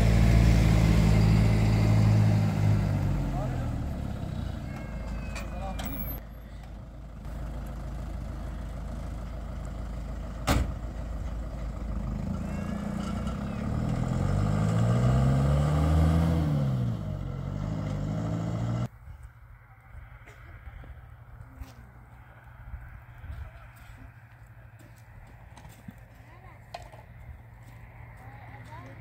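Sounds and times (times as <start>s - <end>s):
vehicle engine revving: 0.0s - 4.6s, 11.8s - 18.9s.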